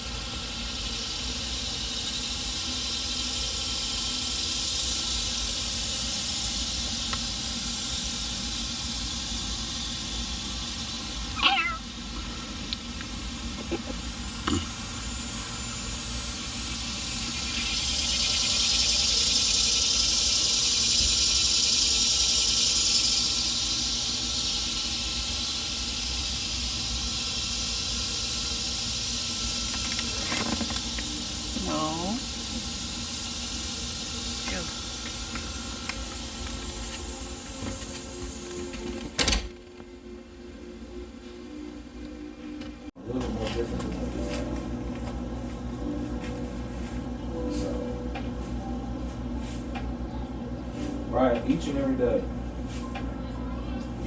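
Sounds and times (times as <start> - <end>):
steady hum and hiss: 0.0 - 54.0
cat meowing: 11.4 - 11.8.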